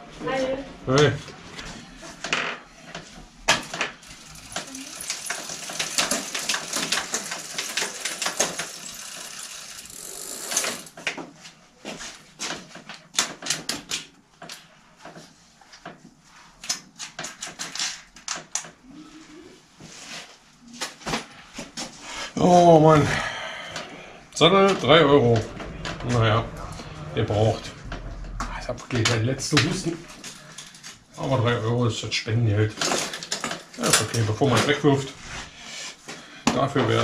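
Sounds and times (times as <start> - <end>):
metal bicycle parts clattering: 3.6 - 11.1.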